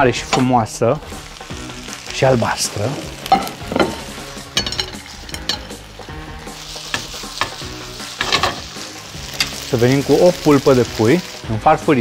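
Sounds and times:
vegetables sizzling in a frying pan: 0.0 - 12.0
spatula scraping and clicking on pan: 8.2 - 8.7.

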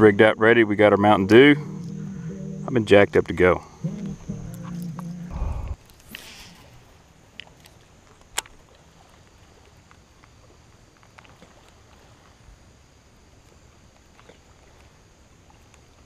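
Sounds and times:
faint ticks: 3.8 - 6.7, 13.4 - 16.0.

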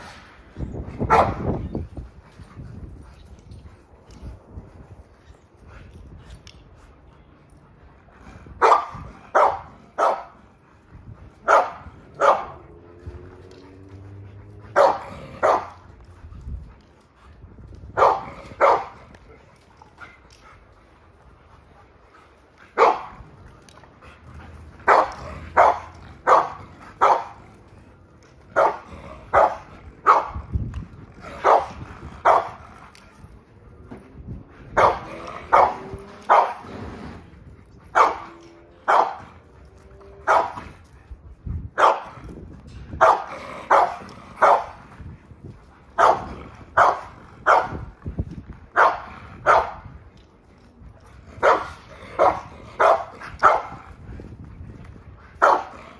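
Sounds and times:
dog barking: 1.1 - 1.4, 8.6 - 10.4, 11.5 - 12.6, 14.7 - 15.8, 18.0 - 18.9, 22.8 - 23.1, 24.9 - 27.4, 28.6 - 30.4, 31.4 - 32.6, 34.8 - 36.6, 38.0 - 38.2, 38.9 - 39.2, 40.3 - 40.6, 41.8 - 42.1, 43.0 - 44.7, 46.0 - 47.8, 48.8 - 49.8, 51.4 - 53.8, 55.4 - 55.7.

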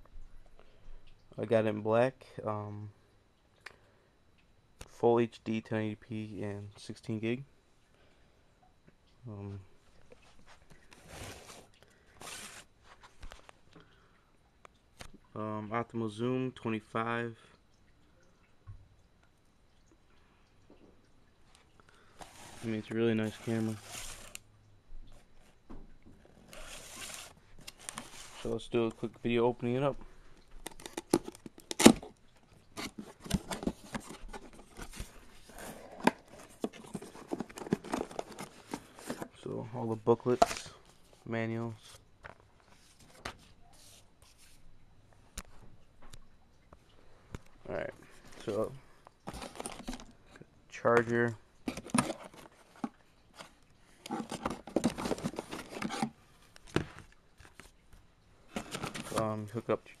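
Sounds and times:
paper and packing rustling: 10.2 - 13.5, 22.2 - 24.4, 26.3 - 29.1, 32.7 - 39.4, 48.2 - 50.1, 51.7 - 56.1, 58.5 - 59.8
rummaging in a cardboard box: 22.2 - 24.4, 26.3 - 28.6, 32.8 - 39.4, 49.3 - 50.1, 51.7 - 56.2, 58.5 - 59.6.

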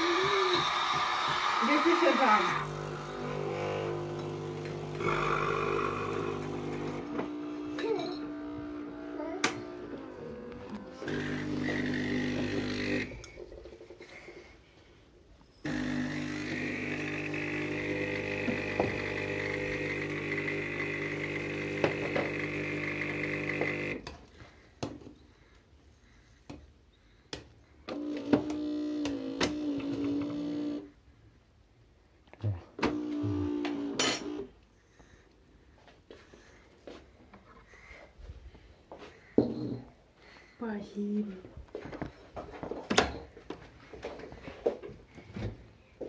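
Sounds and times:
steam hiss: 0.0 - 2.7
coffee machine pump buzzing: 0.0 - 13.2, 15.6 - 24.0, 27.9 - 30.9, 32.8 - 34.5.

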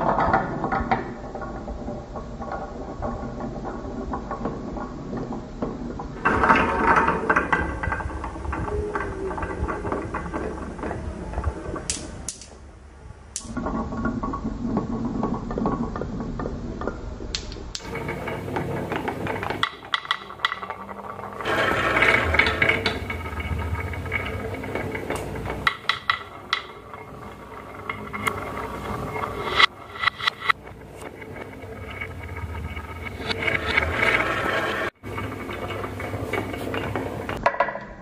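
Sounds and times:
marbles rolling on wooden tracks: 0.0 - 12.7, 13.4 - 38.0
marbles clicking: 17.3 - 37.4.

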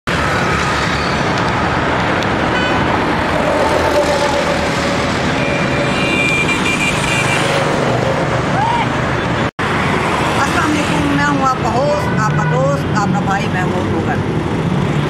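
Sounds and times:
city road traffic: 0.0 - 15.0
car horn: 2.5 - 3.0, 5.3 - 7.7.

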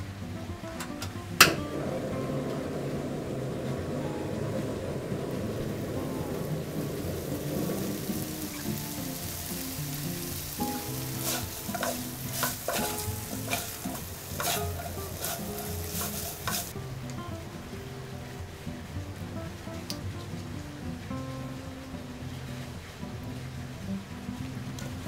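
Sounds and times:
food sizzling in a frying pan: 0.7 - 25.0
spatulas scraping and knocking pan: 7.5 - 16.8.

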